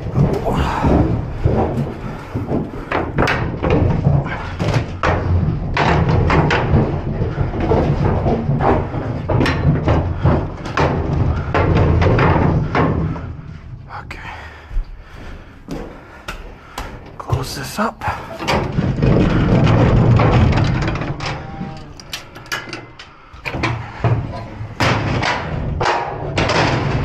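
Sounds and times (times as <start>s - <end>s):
footsteps knocking in metal trailer: 0.0s - 13.8s, 14.5s - 21.6s.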